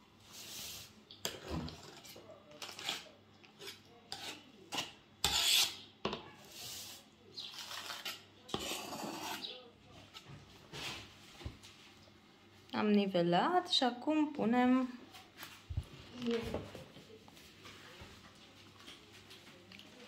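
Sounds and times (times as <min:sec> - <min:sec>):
knife scraping whipped cream: 0:00.3 - 0:05.8, 0:06.4 - 0:10.2.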